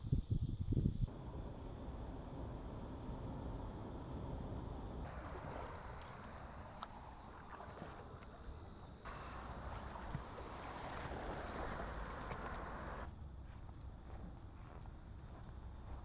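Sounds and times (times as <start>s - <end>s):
wind rumble on microphone: 0.0s - 16.0s
paddle swishing and dripping water: 5.1s - 13.9s.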